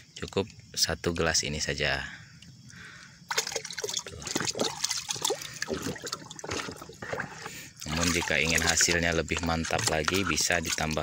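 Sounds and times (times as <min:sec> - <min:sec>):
water sloshing in a bucket: 0:03.2 - 0:11.0.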